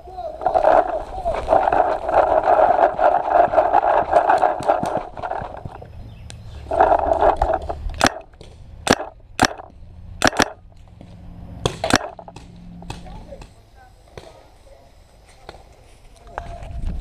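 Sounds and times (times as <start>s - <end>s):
scraping rustle of gear: 0.4s - 5.8s, 6.5s - 7.8s
paintball markers firing: 6.7s - 10.6s, 11.7s - 13.6s.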